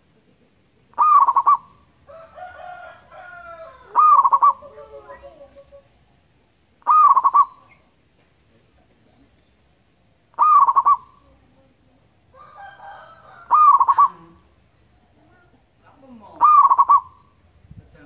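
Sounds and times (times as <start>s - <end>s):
dove cooing: 0.0s - 6.1s, 6.8s - 7.9s, 10.3s - 17.3s
birds chirping: 0.0s - 18.0s.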